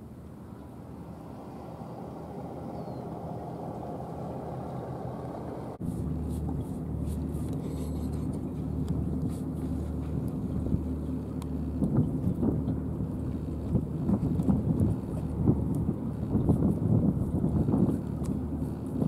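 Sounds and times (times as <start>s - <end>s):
steady low rumble: 0.0s - 19.0s
engine idling: 0.9s - 11.8s.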